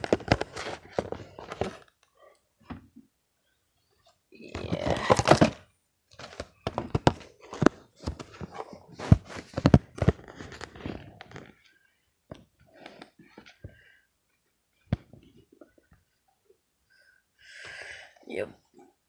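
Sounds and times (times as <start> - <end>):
cardboard boxes knocking and rustling: 4.6 - 11.1.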